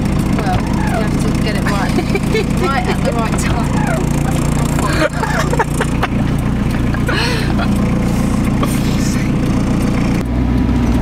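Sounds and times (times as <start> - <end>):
van engine running: 0.0 - 11.0.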